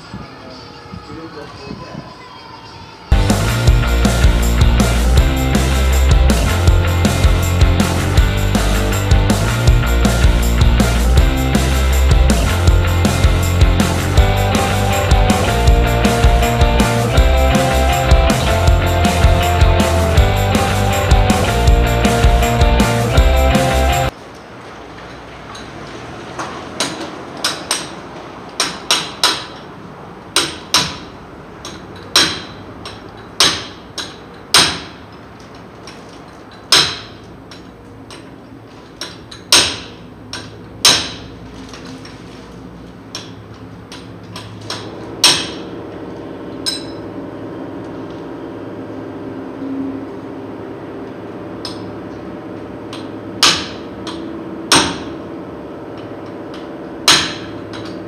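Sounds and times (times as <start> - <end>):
hammer striking metal: 26.8 - 28.0, 28.6 - 29.7, 30.4 - 35.1, 36.7 - 38.3, 39.0 - 41.4, 43.1 - 45.8, 46.6 - 47.1, 52.9 - 55.3, 56.0 - 58.0.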